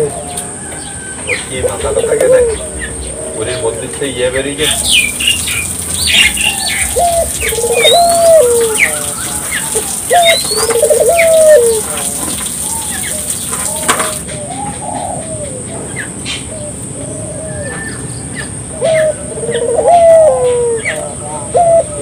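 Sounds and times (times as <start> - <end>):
dove cooing: 0.0 - 22.0
small birds chirping: 0.0 - 22.0.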